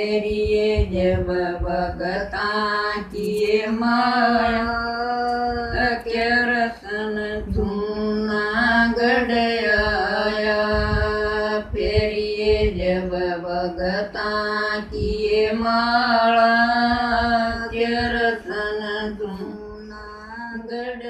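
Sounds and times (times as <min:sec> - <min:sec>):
women singing a folk chant: 0:00.0 - 0:21.0.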